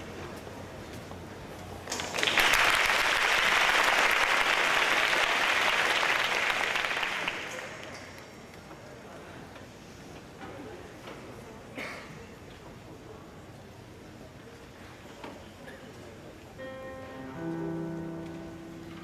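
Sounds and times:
audience applauding: 1.9 - 8.1.

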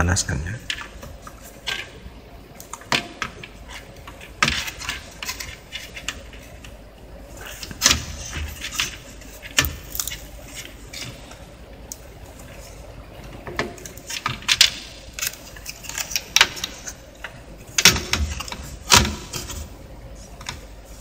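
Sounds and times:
clicks and knocks of handling: 20.4 - 20.7.

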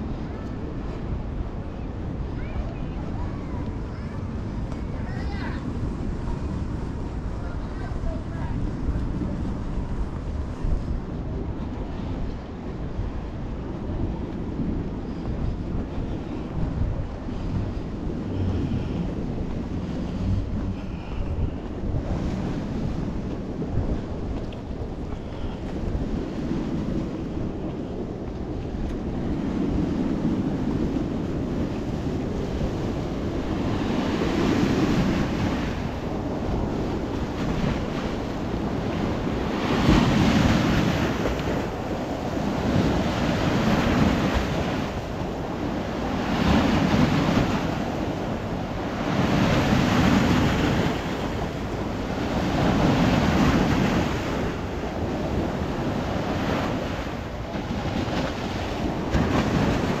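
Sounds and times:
wind rumbling on microphone: 0.0 - 60.0
sea waves breaking on concrete steps: 31.0 - 60.0.

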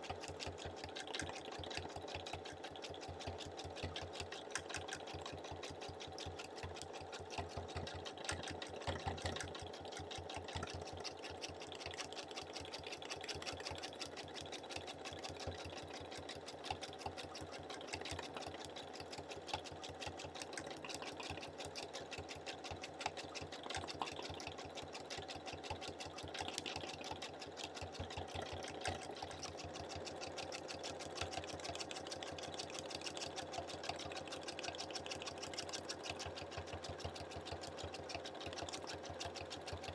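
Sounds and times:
sewing machine stitching: 0.0 - 39.9.

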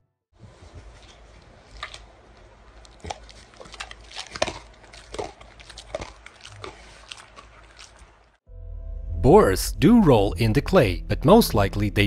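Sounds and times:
pig chewing with smacking sounds: 0.5 - 8.4.

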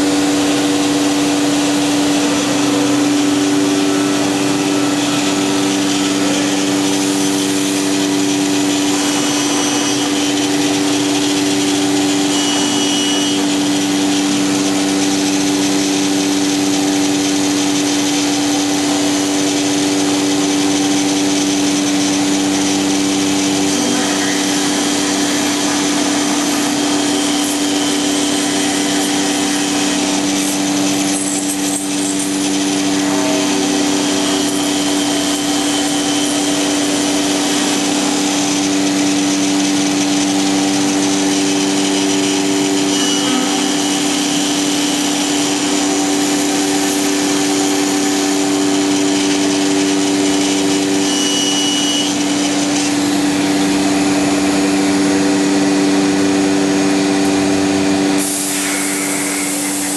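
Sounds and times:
router spindle whine: 0.0 - 59.9
hiss of wood cutting: 20.1 - 52.1, 58.2 - 59.9.

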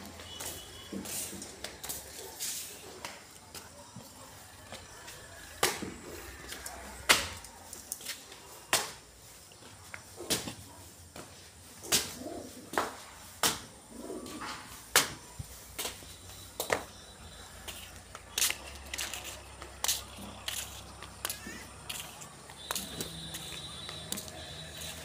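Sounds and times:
pigeons cooing: 11.8 - 12.8, 13.8 - 14.8.

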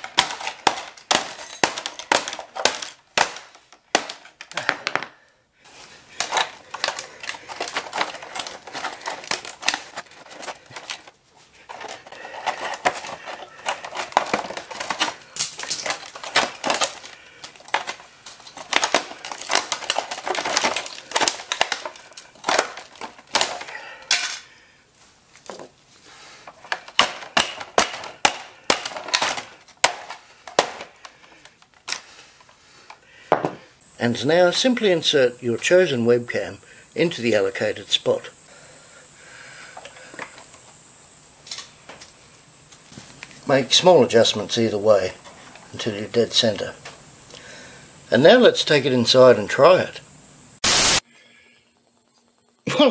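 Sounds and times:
screen layers cracking and snapping: 13.7 - 23.7.

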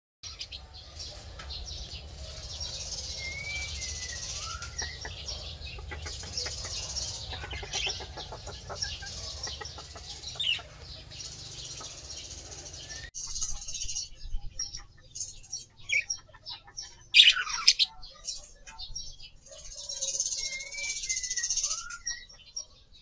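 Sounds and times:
small birds chirping: 0.2 - 23.0
whistled bird notes: 2.7 - 5.6, 19.9 - 22.3.

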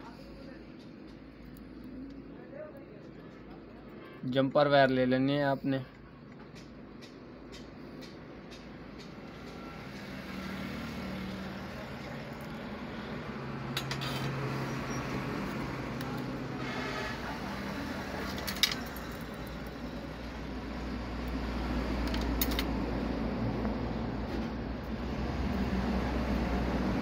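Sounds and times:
small tools clicking and clinking: 13.7 - 14.4, 18.2 - 19.8, 22.0 - 22.8.

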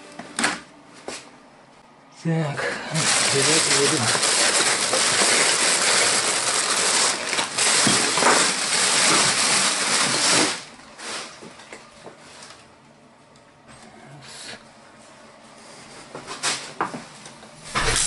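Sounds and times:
plastic bag rustling: 2.9 - 11.6.

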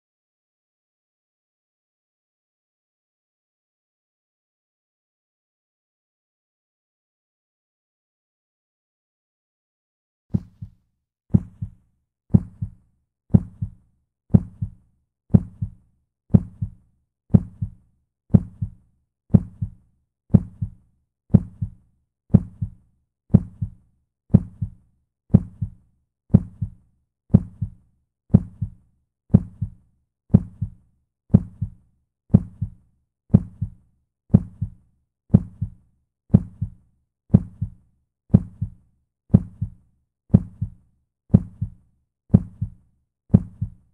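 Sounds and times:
heartbeat thumping: 10.4 - 43.8.

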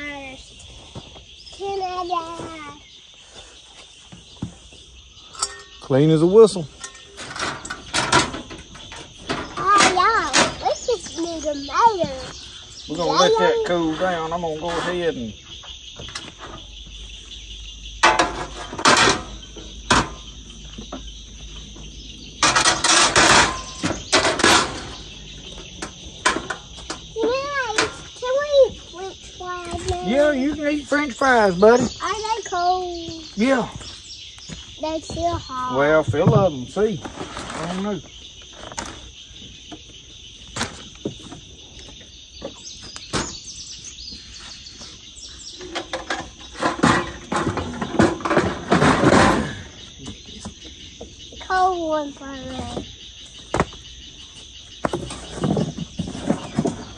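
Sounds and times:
bird calling: 0.0 - 56.9
insect chirring: 0.0 - 56.9
camp stove metal clanks and rattles: 5.2 - 6.0, 6.6 - 10.8, 18.0 - 20.9, 22.3 - 28.1, 45.5 - 49.9.

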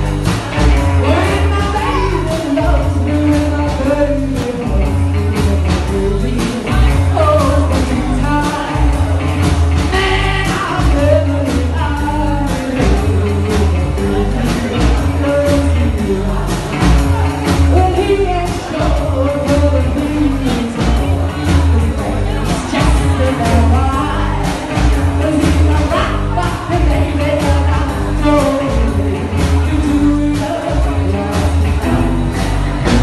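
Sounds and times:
drum kit: 0.0 - 33.0
electric guitar: 0.0 - 33.0
upright double bass: 0.0 - 33.0
woman singing: 1.0 - 33.0.

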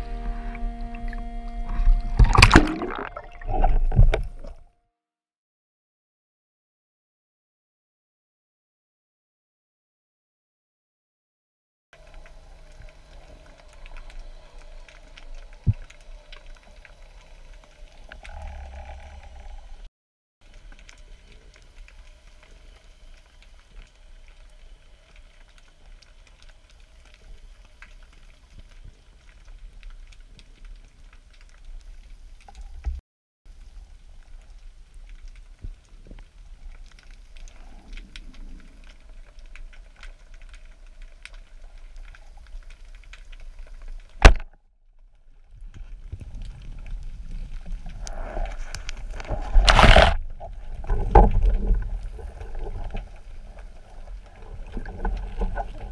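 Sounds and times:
water rushing and splashing: 1.0 - 4.5, 46.1 - 55.9
faint underwater clicks: 12.0 - 44.6, 45.5 - 55.9
speargun firing crack: 44.2 - 44.5
underwater hiss: 47.0 - 49.8.

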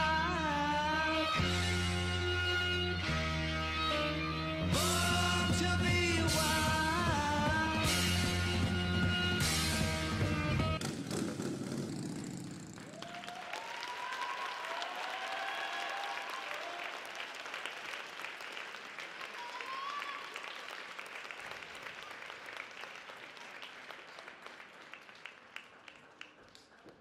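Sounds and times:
audience applauding: 10.9 - 27.0
shouted cheers: 12.8 - 17.4, 19.2 - 20.7.

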